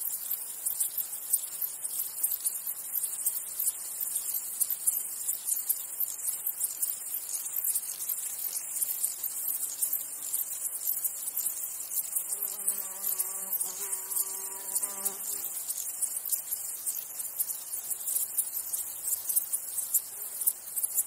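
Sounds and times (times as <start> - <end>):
insects chirring: 0.0 - 21.0
flying insect buzzing: 12.2 - 16.1.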